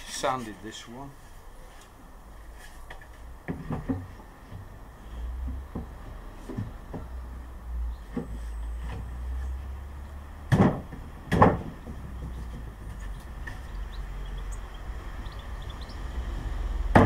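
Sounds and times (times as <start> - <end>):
wooden panels knocking: 3.5 - 4.7, 10.5 - 13.8.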